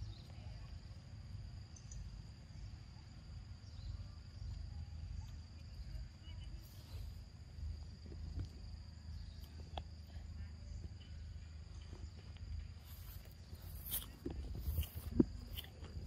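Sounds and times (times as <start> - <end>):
insects chirring: 0.0 - 16.0
low wind rumble on microphone: 7.2 - 10.0.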